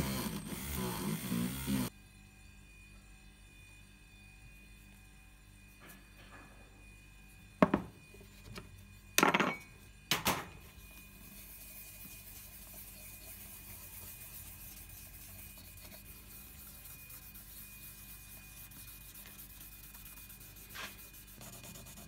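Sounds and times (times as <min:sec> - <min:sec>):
cloth rubbing wax on wood: 0:11.2 - 0:22.0.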